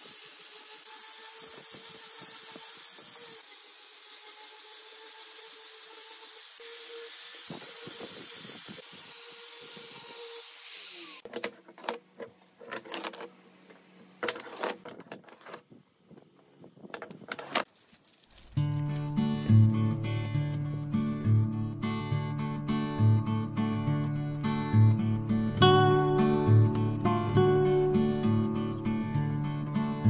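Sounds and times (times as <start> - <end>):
angle grinder grinding wood: 0.0 - 12.0.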